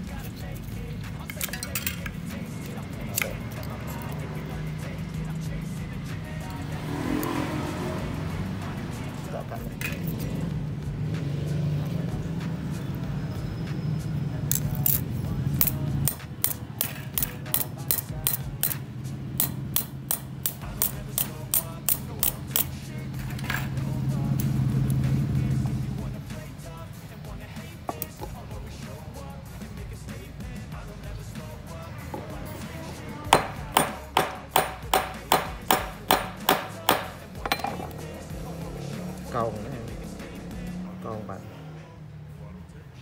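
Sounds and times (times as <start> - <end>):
hammer tapping metal rod: 19.4 - 22.7, 33.3 - 38.0.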